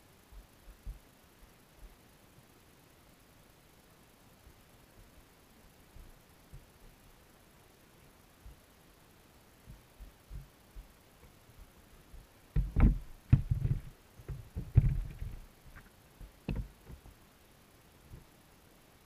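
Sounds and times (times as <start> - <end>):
faint ticks: 0.0 - 2.6, 3.7 - 17.3, 17.9 - 18.4
muffled underwater thumps: 12.6 - 15.4, 16.2 - 17.1.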